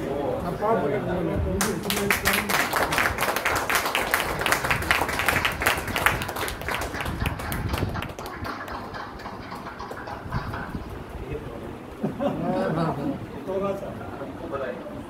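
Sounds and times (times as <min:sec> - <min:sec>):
group clapping: 0:01.6 - 0:10.9.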